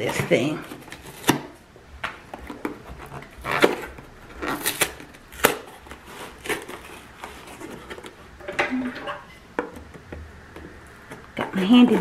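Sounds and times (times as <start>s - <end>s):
cardboard scraping: 2.4s - 8.3s.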